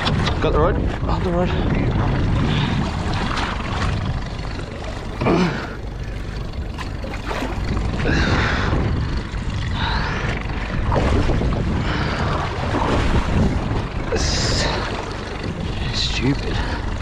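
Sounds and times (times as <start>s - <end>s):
boat engine rumble: 0.0s - 17.0s.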